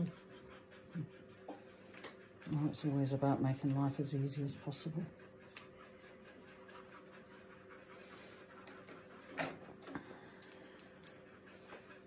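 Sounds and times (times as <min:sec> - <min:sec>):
puppy breathy huff: 0:05.1 - 0:12.0.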